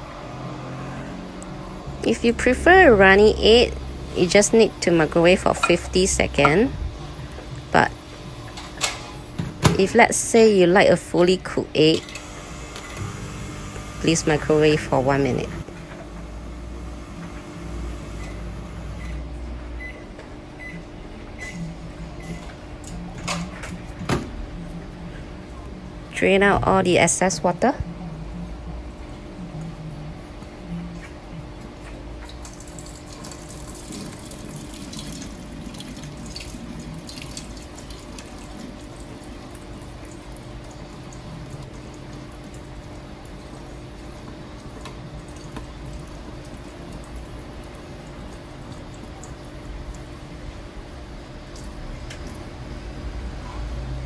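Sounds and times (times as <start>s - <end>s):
microwave oven humming: 11.1s - 22.8s
water trickling into a sink: 32.2s - 50.5s.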